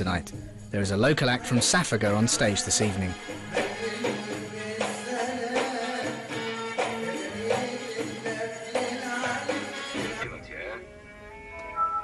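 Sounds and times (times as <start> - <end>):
sustained keyboard melody: 10.2 - 12.0.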